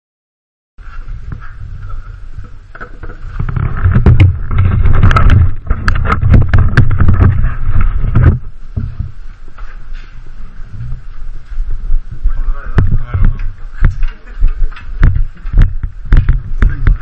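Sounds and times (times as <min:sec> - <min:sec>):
camera handling rumble and rubbing: 0:00.9 - 0:11.8, 0:12.7 - 0:17.0
knocks and clicks: 0:02.7 - 0:09.0.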